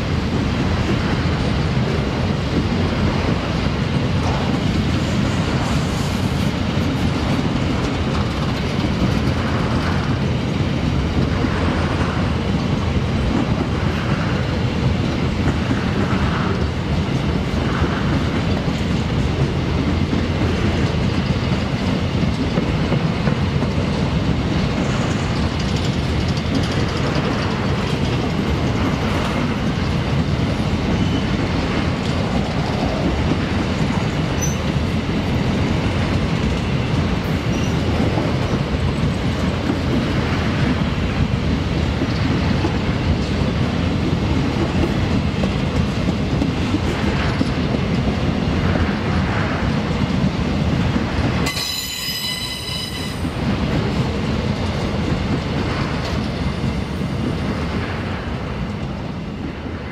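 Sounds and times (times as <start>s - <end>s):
freight train rumbling past: 0.0s - 59.9s
wheel squeal: 37.5s - 37.8s, 51.5s - 53.2s
high ringing tone: 51.5s - 53.2s.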